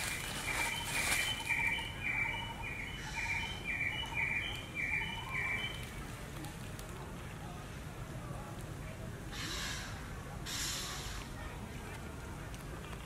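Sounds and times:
scratchy rustle: 0:00.0 - 0:01.5.

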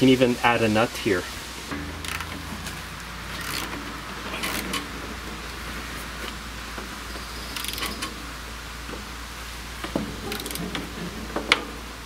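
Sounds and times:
steady low hum: 0:01.2 - 0:12.0
ratchet wrench clicking: 0:02.0 - 0:02.4, 0:03.4 - 0:03.8, 0:04.4 - 0:04.8, 0:07.5 - 0:08.1, 0:10.3 - 0:10.7.

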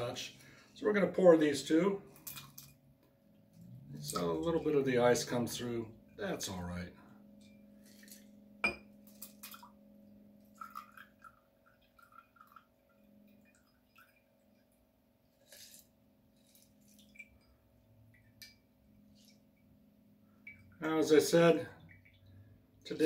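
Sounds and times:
faint steady hum: 0:00.0 - 0:23.0
ice clinking in glass: 0:07.5 - 0:09.7
sharp glass clink: 0:08.6 - 0:08.9.

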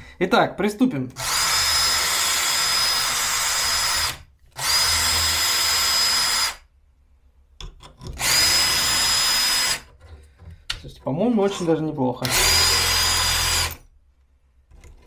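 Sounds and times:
drill motor whine: 0:01.2 - 0:06.6, 0:08.2 - 0:09.8, 0:12.2 - 0:13.8.

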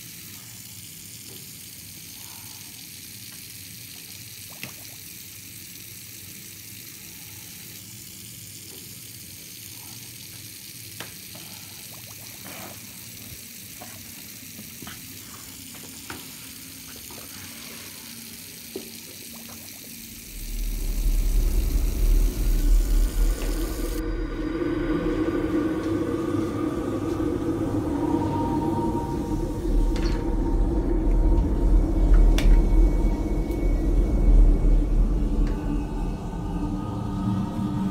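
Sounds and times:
steady hiss: 0:00.0 - 0:37.9
deep low rumble: 0:20.1 - 0:37.9.

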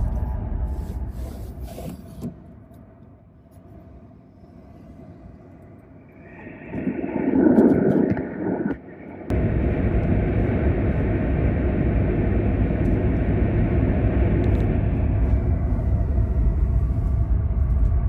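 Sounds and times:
high-speed train running: 0:04.8 - 0:18.0.

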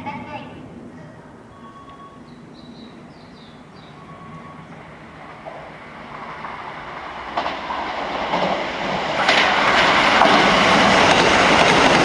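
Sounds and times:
electric train running past: 0:00.0 - 0:12.0
wheels clacking over rail joints: 0:04.2 - 0:12.0.

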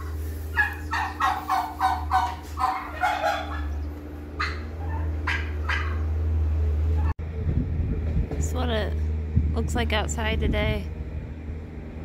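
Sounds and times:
turkeys calling: 0:00.0 - 0:07.1.

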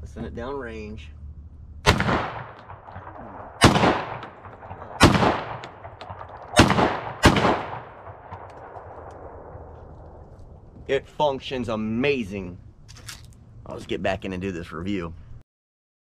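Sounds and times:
loud shotgun shots with echo: 0:01.8 - 0:09.8.

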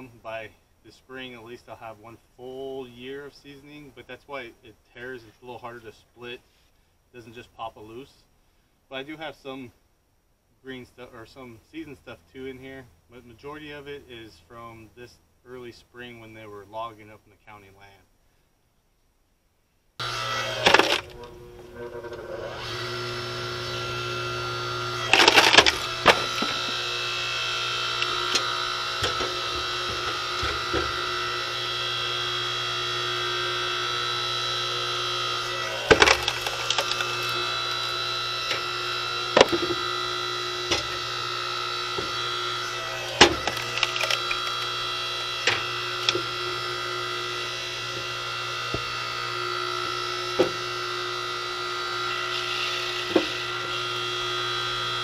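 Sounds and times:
wood cracking and splintering: 0:20.0 - 0:50.9
log splitter motor humming: 0:20.0 - 0:55.0.

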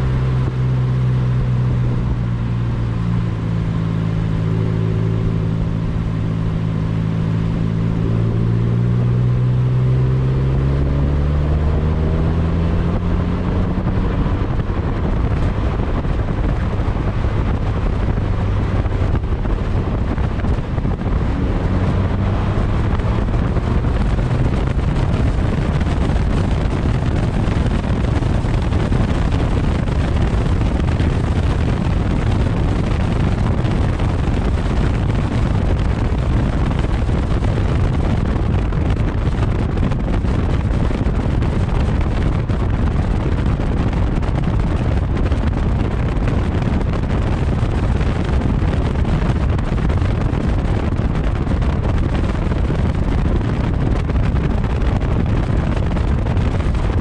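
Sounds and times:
tyre roar on asphalt: 0:00.0 - 0:57.0
wind buffeting microphone: 0:00.0 - 0:57.0.

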